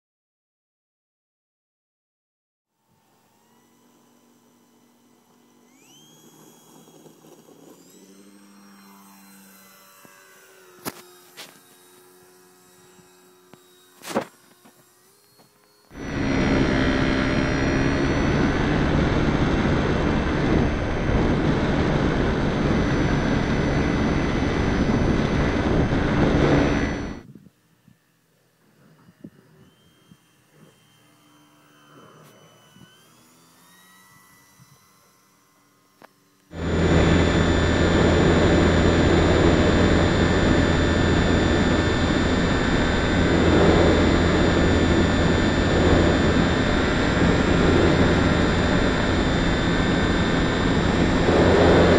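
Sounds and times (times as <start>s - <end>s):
model airplane motor running: 2.7s - 51.9s
loud steady rushing noise: 16.0s - 27.2s, 36.6s - 51.9s.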